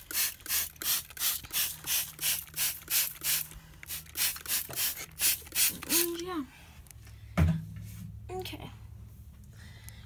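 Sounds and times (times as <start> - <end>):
spray mister squirts: 0.0 - 6.1.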